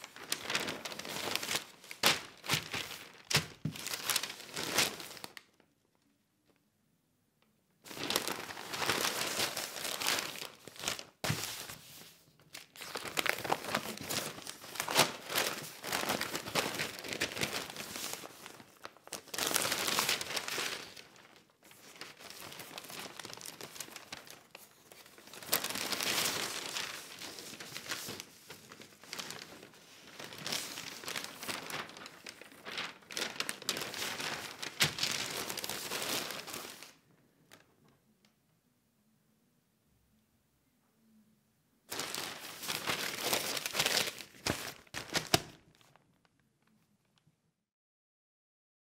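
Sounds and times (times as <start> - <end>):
newspaper rustling: 0.0 - 5.5, 7.9 - 37.6, 41.9 - 46.0
newspaper page turning: 0.0 - 5.6, 7.9 - 37.0, 41.9 - 46.0.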